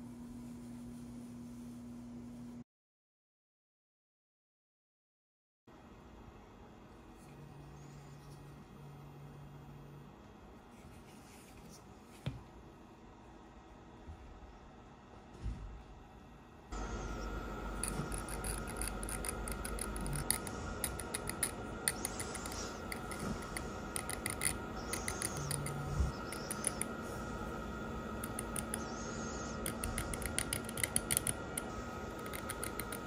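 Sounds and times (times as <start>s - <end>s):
knife blade scraping resin: 17.8s - 26.9s.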